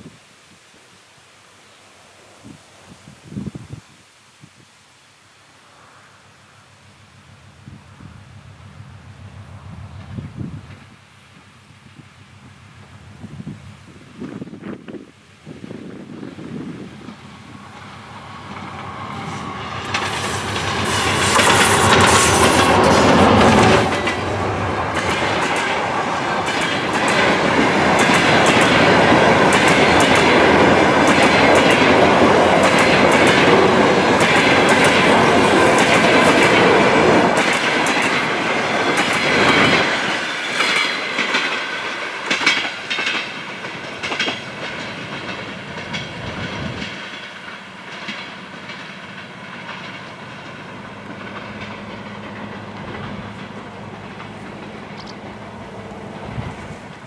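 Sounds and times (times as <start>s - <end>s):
diesel locomotive engine: 6.6s - 11.2s, 15.5s - 57.0s
train wheels clickety-clack: 17.0s - 57.0s.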